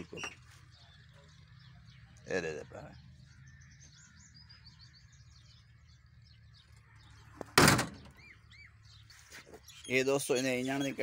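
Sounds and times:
car door clunk: 7.4 - 8.1.

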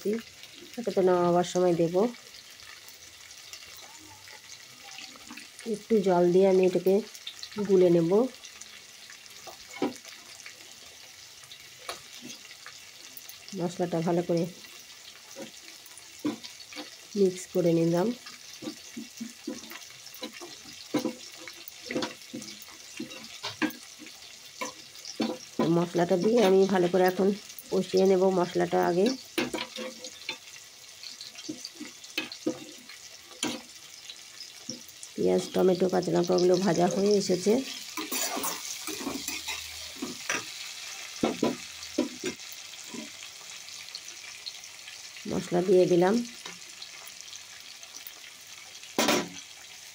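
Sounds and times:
vegetables sizzling in hot oil: 0.0 - 49.9
spatula scraping and knocking pan: 15.2 - 17.0, 18.2 - 26.7, 29.0 - 33.7, 36.3 - 40.6, 41.2 - 43.3
spoon scraping steel bowl: 37.6 - 40.2.

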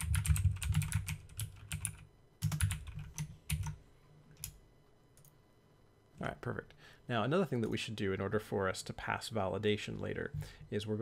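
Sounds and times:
computer keyboard typing: 0.0 - 3.8.

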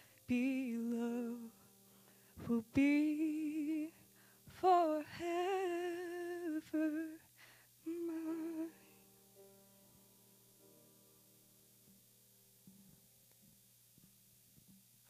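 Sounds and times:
woman singing a hymn: 0.0 - 1.7, 2.3 - 9.0
piano accompaniment: 0.0 - 6.9, 7.9 - 14.9.

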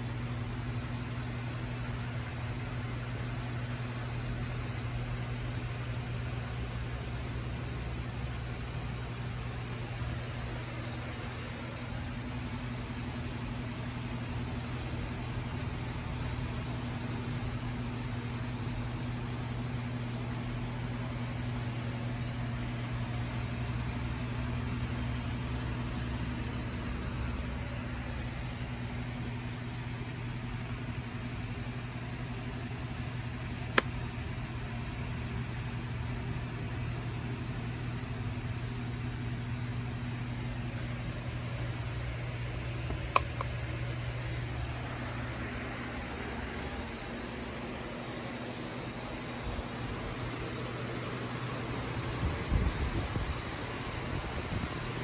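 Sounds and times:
low machine hum: 0.0 - 55.0
sharp click: 42.9 - 43.6.

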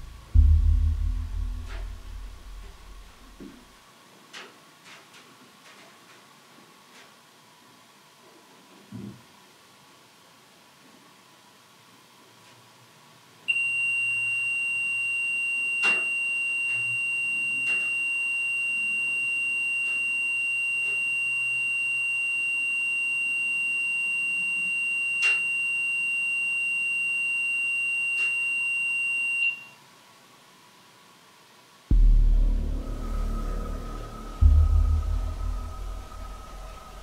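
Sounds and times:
steady high-pitched beep: 0.0 - 3.3, 31.9 - 37.0.

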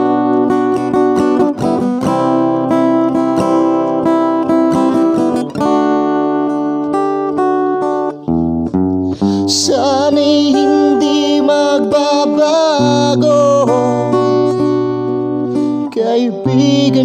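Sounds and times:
acoustic guitar strumming chords: 0.0 - 17.0
man singing: 9.1 - 17.0.

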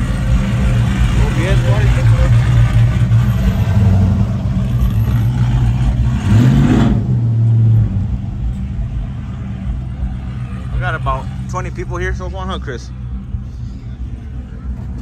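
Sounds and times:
truck engine revving: 0.0 - 8.3.

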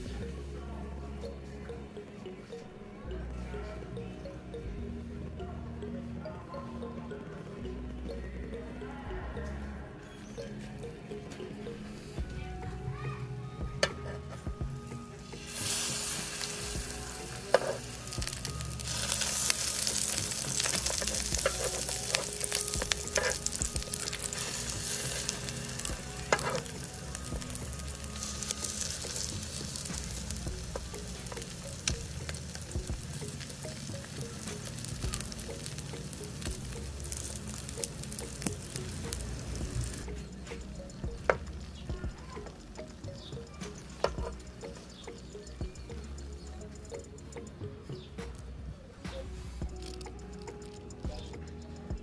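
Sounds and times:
food sizzling in oil: 15.2 - 40.1.

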